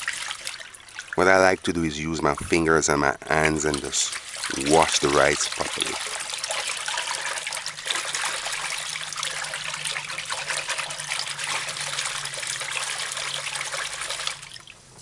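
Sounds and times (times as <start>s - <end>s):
rice being washed in water: 3.3s - 14.7s.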